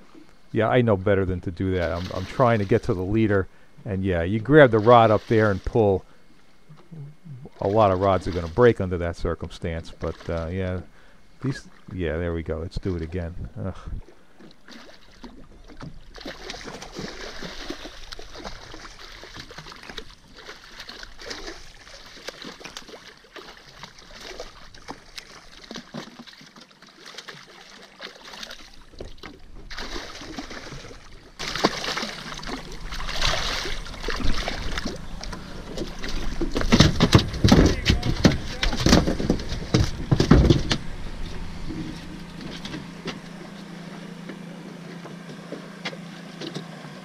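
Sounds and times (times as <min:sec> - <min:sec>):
water splashing against boat: 0:00.0 - 0:47.0
fish thrashing in water: 0:01.7 - 0:03.7, 0:04.5 - 0:11.9, 0:14.0 - 0:46.7.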